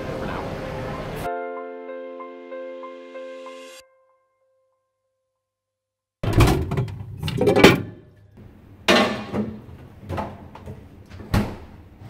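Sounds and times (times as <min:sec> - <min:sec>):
bottles clattering in refrigerator: 0:06.2 - 0:08.3, 0:08.9 - 0:10.9.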